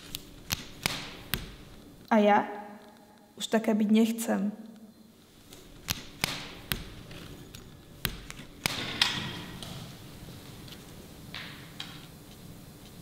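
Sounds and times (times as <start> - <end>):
sharp clicks and knocks: 5.5 - 9.8.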